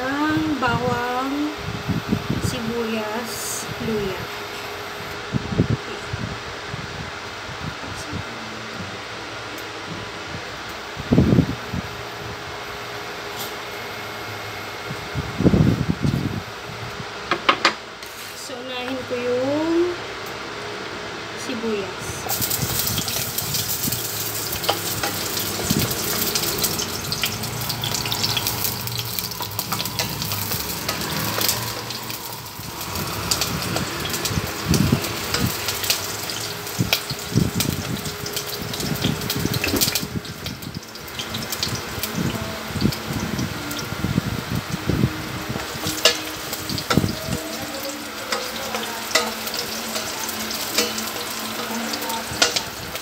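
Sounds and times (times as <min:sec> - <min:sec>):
onion sizzling in hot oil: 0:21.7 - 0:53.0.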